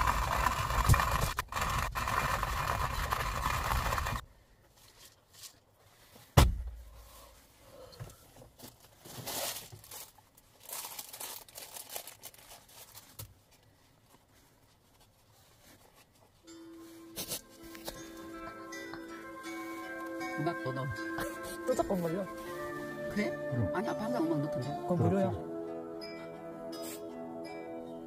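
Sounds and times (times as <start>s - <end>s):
coffee grinder grinding beans: 0.0s - 4.2s
faint rustling: 4.5s - 18.4s
sharp knock: 6.4s - 6.8s.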